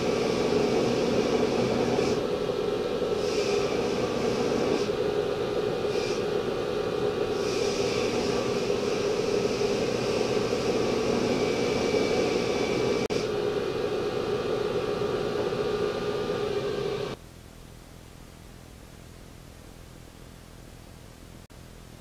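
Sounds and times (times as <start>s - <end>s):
belt grinder running: 0.0s - 17.2s
steel grinding on belt: 3.1s - 5.0s, 7.2s - 13.1s.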